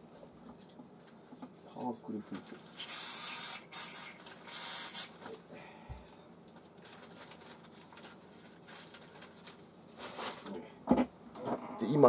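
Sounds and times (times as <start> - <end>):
aerosol spray hissing: 2.8 - 5.1.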